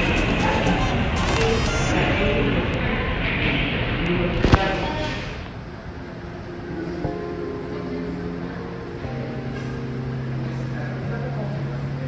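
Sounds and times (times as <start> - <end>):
music of held chords: 6.3 - 12.0.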